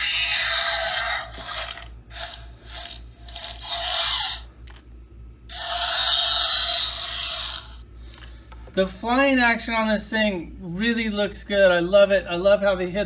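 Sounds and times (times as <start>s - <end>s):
toy electronic screeching: 0.0s - 4.6s, 5.5s - 7.8s.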